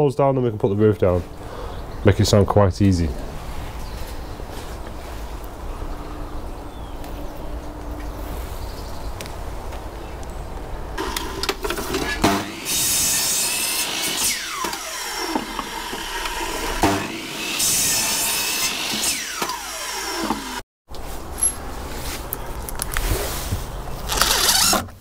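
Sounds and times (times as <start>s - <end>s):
mitre saw cutting wood: 11.0s - 20.6s, 24.0s - 25.0s.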